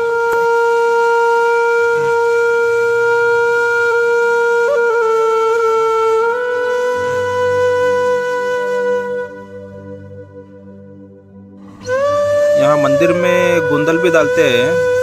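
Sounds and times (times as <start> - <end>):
conch shell blown in long note: 0.0 - 15.0.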